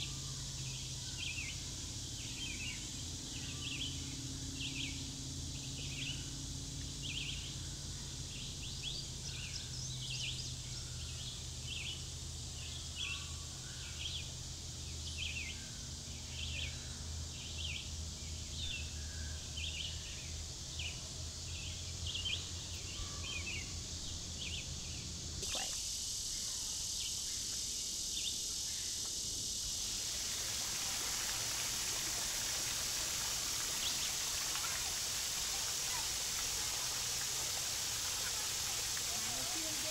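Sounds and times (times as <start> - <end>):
small waterfall splashing: 25.4 - 26.4, 29.6 - 39.9.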